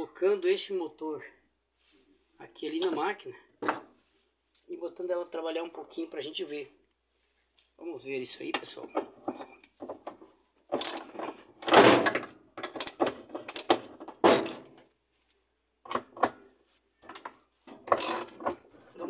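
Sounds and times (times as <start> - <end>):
metal hand tools clinking: 17.7 - 18.4.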